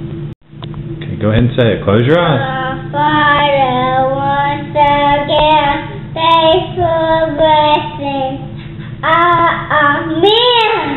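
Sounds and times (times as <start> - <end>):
boy singing sing-song prayer: 2.2 - 10.9.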